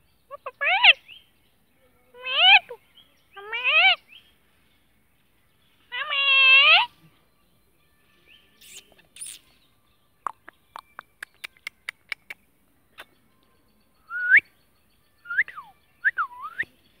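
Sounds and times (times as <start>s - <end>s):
sharp clicks: 10.3s - 12.4s.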